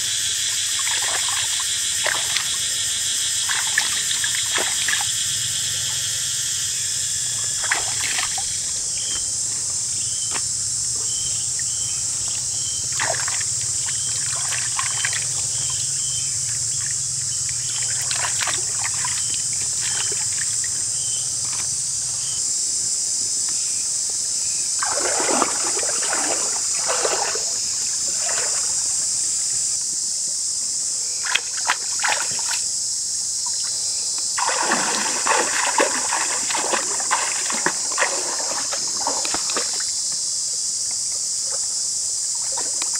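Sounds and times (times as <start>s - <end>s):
high-pitched insect drone: 0.0s - 42.9s
water splashing and trickling: 0.6s - 6.0s, 7.2s - 9.4s, 11.0s - 21.7s, 24.8s - 29.2s, 31.3s - 32.7s, 33.5s - 40.0s, 42.3s - 42.9s.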